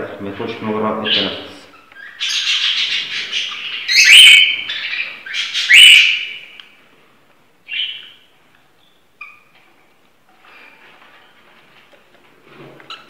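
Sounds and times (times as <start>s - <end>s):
parrot chicks begging calls: 1.0s - 6.6s, 7.7s - 8.3s.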